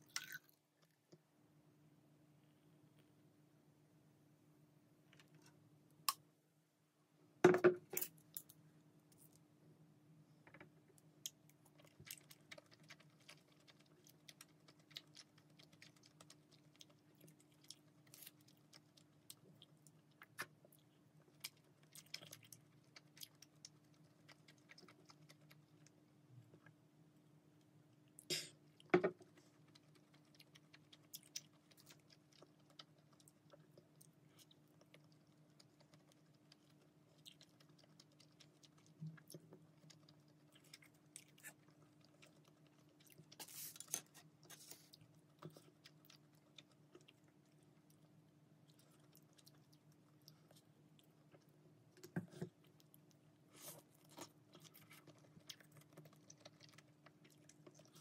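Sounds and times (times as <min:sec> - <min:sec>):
chewing: 0:11.2 - 0:26.8, 0:27.9 - 0:58.0.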